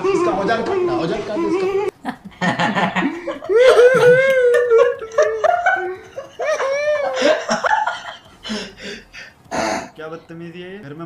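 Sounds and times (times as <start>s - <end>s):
people laughing: 0.0s - 9.3s
high drawn-out laugh: 1.3s - 9.0s.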